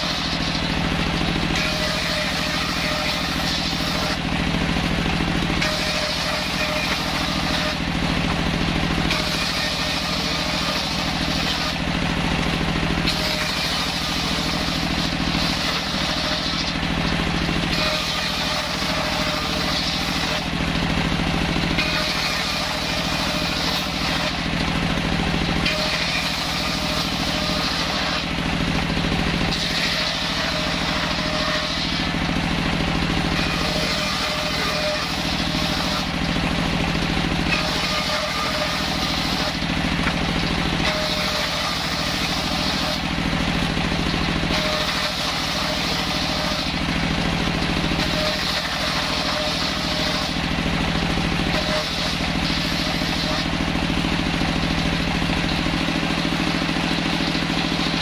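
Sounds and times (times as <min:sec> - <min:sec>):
circular saw cutting wood: 0:00.0 - 0:58.0
saw motor running: 0:00.0 - 0:58.0.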